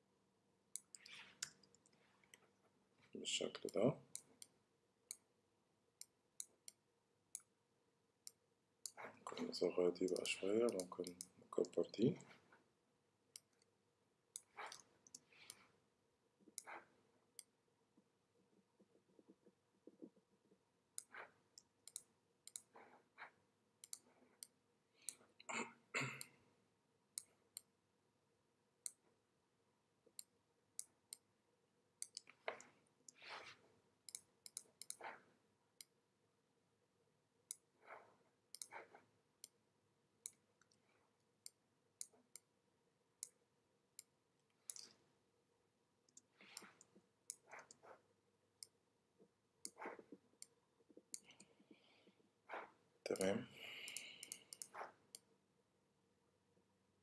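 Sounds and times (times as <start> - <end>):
computer mouse and keyboard clicking: 8.3 - 11.9, 14.4 - 15.7, 34.1 - 35.2.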